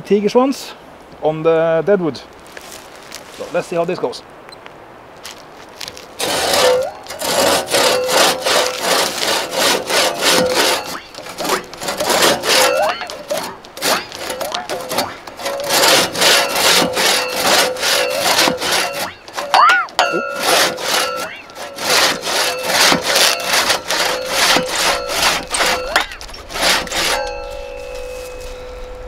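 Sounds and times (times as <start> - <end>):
hand saw cutting wood: 5.9 - 28.6
saw blade twanging: 6.2 - 29.0
steady ringing tone: 20.0 - 29.0.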